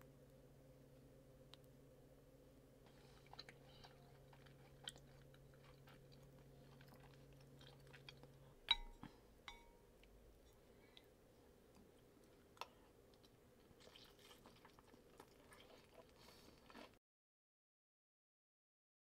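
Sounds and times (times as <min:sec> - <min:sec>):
chewing and mouth sounds: 0:02.8 - 0:09.2, 0:11.7 - 0:17.0
spoon clinking against ceramic bowl: 0:08.7 - 0:09.8.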